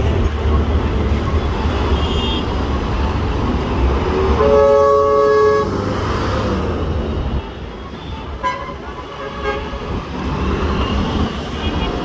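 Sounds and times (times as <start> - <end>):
heavy street traffic: 0.0 - 12.0
vehicle horn honking: 4.4 - 5.7, 8.0 - 9.8.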